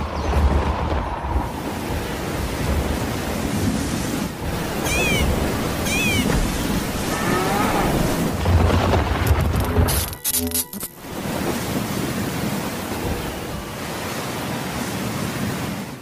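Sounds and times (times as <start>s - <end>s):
thunder rumbling: 0.0s - 9.9s
heavy rain hissing: 1.4s - 8.7s.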